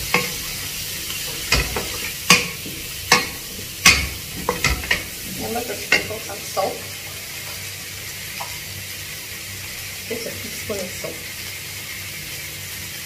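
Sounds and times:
vegetables sizzling in a wok: 0:00.0 - 0:13.0
wooden spatula knocking pan: 0:01.2 - 0:06.3.

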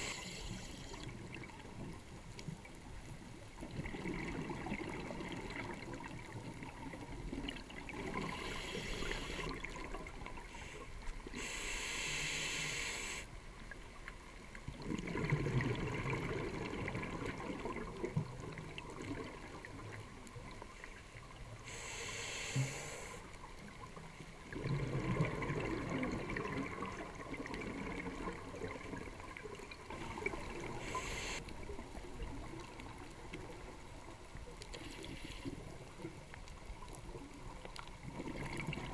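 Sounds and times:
regulator inhale hissing: 0:00.0 - 0:01.1, 0:08.2 - 0:09.7, 0:10.5 - 0:13.3, 0:21.6 - 0:23.4, 0:30.6 - 0:31.5, 0:34.9 - 0:35.6
underwater wash: 0:00.0 - 0:38.9.

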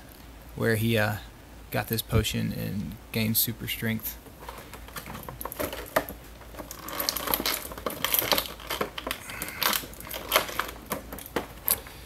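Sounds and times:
plastic bag crinkling: 0:04.2 - 0:12.0.

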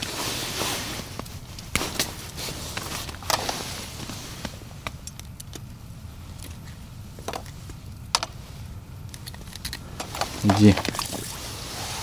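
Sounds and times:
sharp clicks and crackles: 0:01.2 - 0:05.7, 0:09.1 - 0:11.2.

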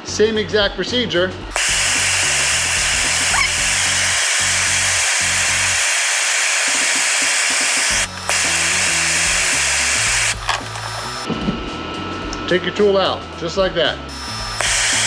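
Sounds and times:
gas torch flame hissing: 0:01.5 - 0:11.3, 0:14.1 - 0:15.0
background music: 0:08.0 - 0:15.0.

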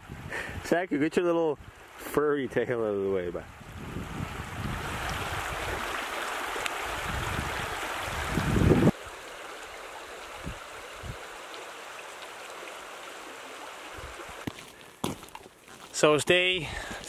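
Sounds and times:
wind buffeting microphone: 0:03.4 - 0:06.0, 0:06.9 - 0:09.0.

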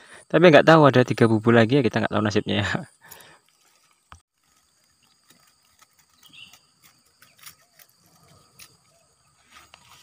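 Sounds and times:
rustling and light clicks: 0:03.5 - 0:08.8.

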